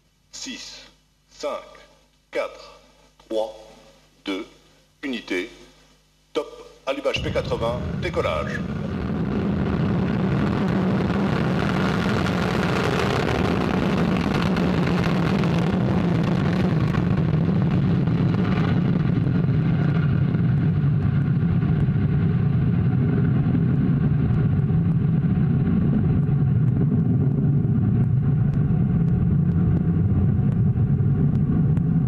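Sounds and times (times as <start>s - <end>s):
rocket exhaust roar: 7.1s - 32.0s.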